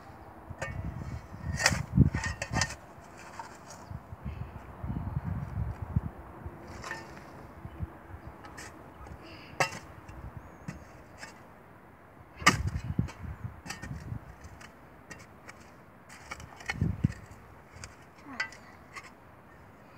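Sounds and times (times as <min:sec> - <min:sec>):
shovel scraping dry dirt: 0:00.6 - 0:04.0, 0:06.6 - 0:07.4, 0:10.7 - 0:11.4, 0:12.4 - 0:19.2
soil thuds: 0:09.6 - 0:11.4, 0:12.4 - 0:19.1.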